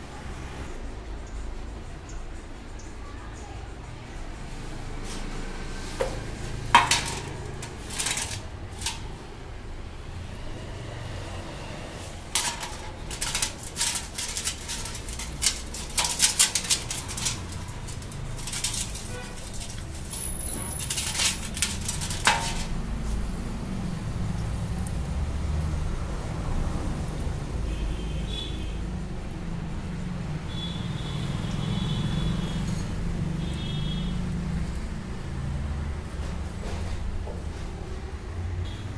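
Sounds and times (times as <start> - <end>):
metal parts clinking in steel basin: 6.0 - 9.2, 12.0 - 22.9
brush scrubbing: 12.3 - 23.3.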